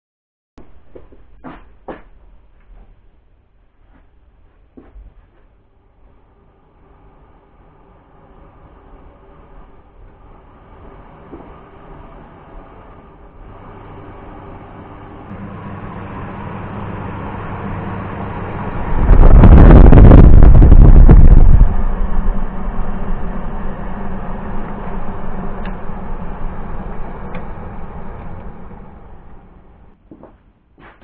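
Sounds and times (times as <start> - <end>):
air rush buffeting microphone: 5.0 - 30.0
fan motor humming: 5.2 - 30.0.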